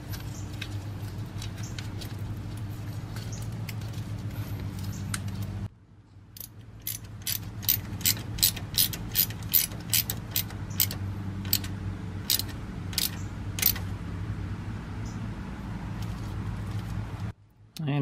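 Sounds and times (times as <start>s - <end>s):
hand ratchet clicking: 6.4s - 11.7s, 12.3s - 13.8s.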